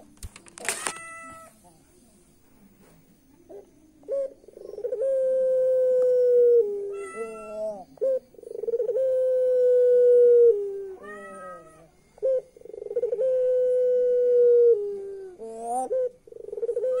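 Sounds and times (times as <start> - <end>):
dove chuckling and cooing: 3.4 - 17.0.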